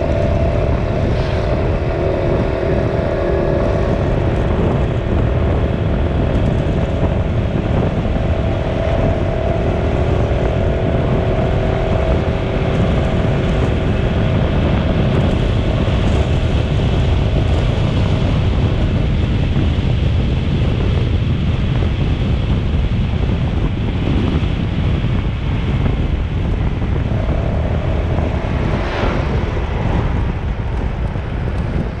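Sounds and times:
droning tone: 0.0 - 18.4, 26.0 - 32.0
vehicle travel rumble: 0.0 - 32.0.

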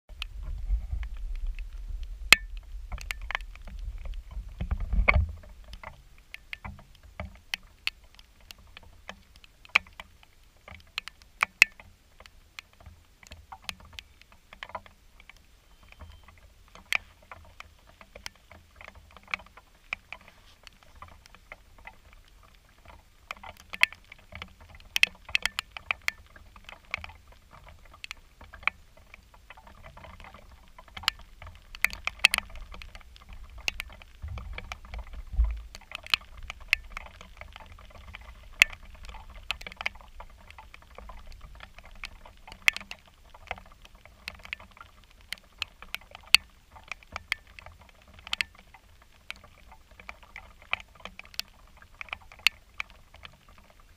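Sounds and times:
low rumble: 0.1 - 5.6
light rain patter: 0.1 - 53.9
raindrops tapping on camera: 0.1 - 53.9.

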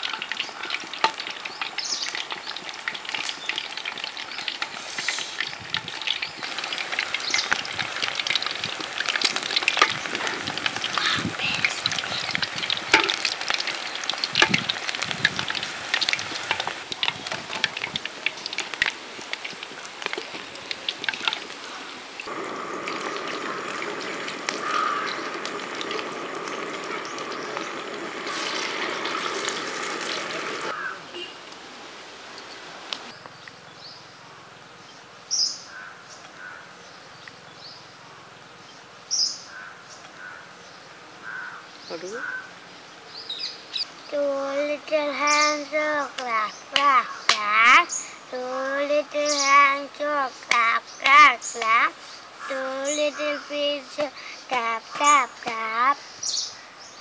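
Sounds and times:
deep-frying in hot oil: 0.0 - 30.9, 43.2 - 57.0.

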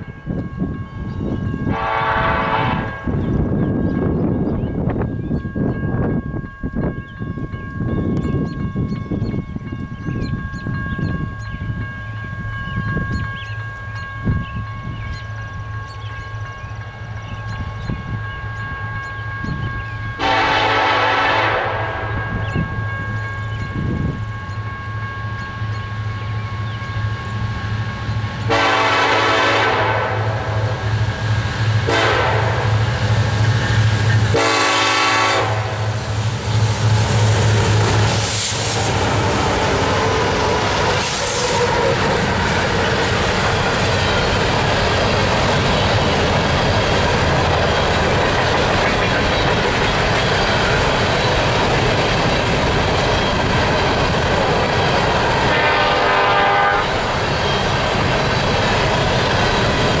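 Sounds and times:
diesel locomotive engines running: 0.0 - 60.0
train wheels clickety-clack on rail: 0.0 - 60.0
locomotive horn blasts: 1.7 - 3.2, 20.2 - 22.4, 28.5 - 30.8, 31.8 - 32.8, 34.3 - 36.0, 39.8 - 42.2, 55.4 - 57.0.

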